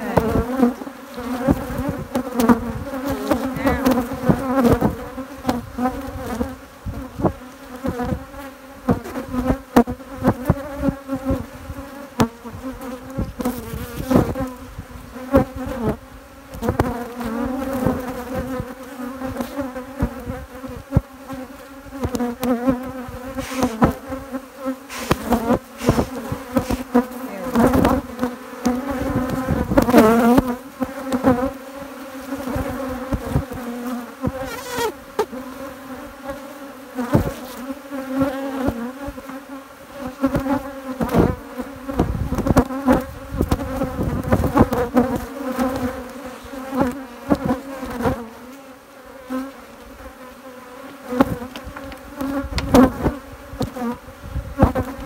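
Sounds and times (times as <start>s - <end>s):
bees buzzing: 0.0s - 55.0s.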